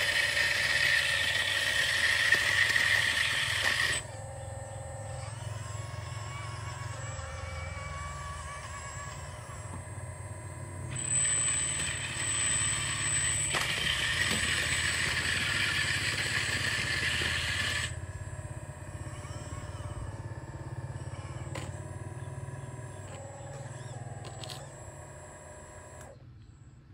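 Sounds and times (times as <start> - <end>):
hydraulic pump running: 0.0 - 26.3
small clicks: 23.0 - 26.5.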